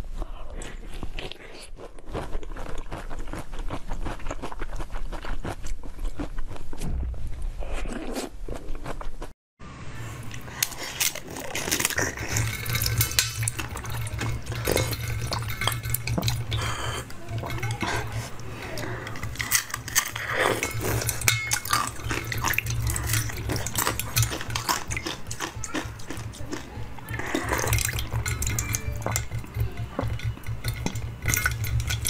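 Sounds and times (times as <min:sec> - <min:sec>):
low steady hum: 0:09.6 - 0:32.0
crisp crunching: 0:10.4 - 0:29.3.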